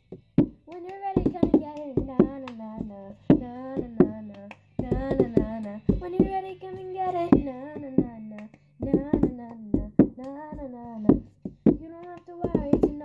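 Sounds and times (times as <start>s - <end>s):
hand claps: 0.1s - 6.4s, 7.1s - 13.0s
girl singing: 0.6s - 13.0s.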